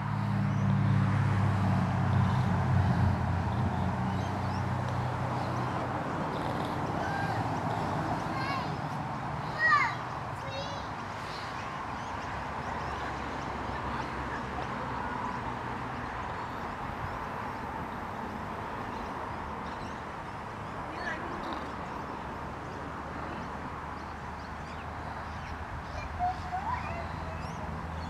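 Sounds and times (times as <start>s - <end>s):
outdoor background noise: 0.0s - 28.0s.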